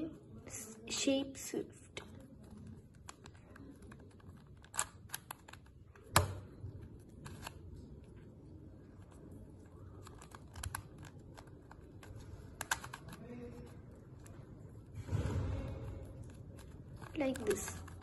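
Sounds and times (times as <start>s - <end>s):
plastic puzzle cube clicking: 2.0s - 7.7s, 9.0s - 14.3s, 16.2s - 18.0s.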